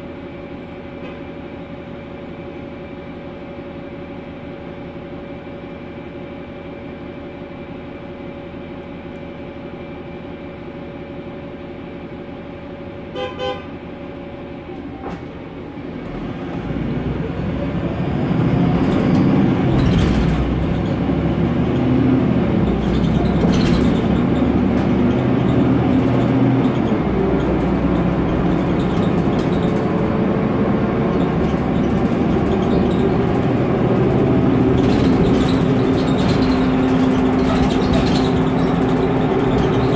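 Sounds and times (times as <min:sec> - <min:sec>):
bus drivetrain rising in pitch: 0:00.0 - 0:39.9
bus engine idling: 0:00.0 - 0:39.9
interior rattles and knocks: 0:18.2 - 0:39.9.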